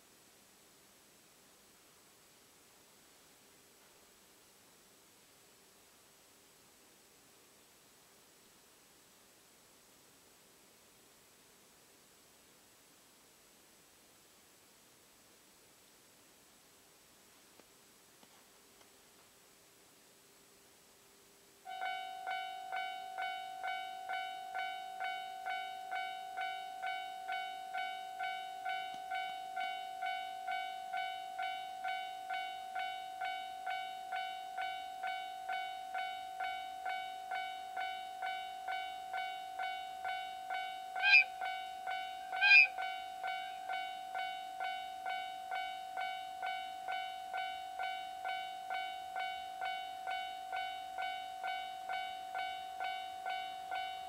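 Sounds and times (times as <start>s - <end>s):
level-crossing warning bell: 21.6s - 54.0s.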